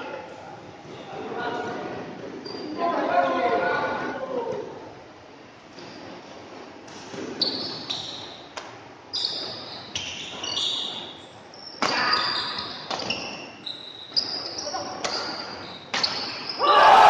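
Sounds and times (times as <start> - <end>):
shoes squeaking on court: 2.3 - 2.9, 6.9 - 16.6
racket hitting shuttlecock: 15.0 - 16.4.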